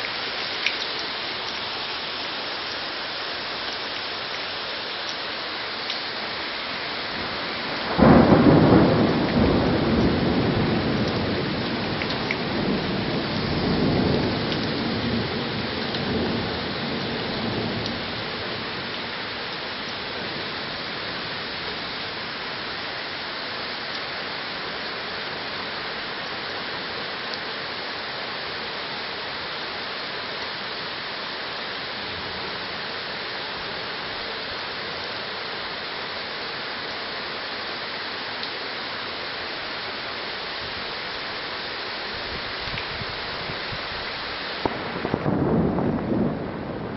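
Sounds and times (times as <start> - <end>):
heavy rain hiss: 0.0 - 46.9
thunder rumbling: 7.2 - 19.0, 44.6 - 46.9.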